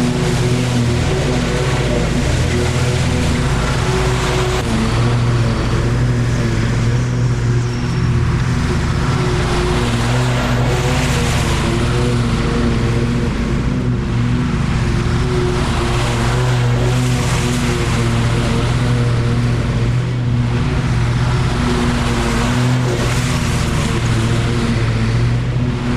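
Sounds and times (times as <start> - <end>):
grass cutting noise: 0.0 - 25.9
lawn mower engine running: 0.0 - 25.9.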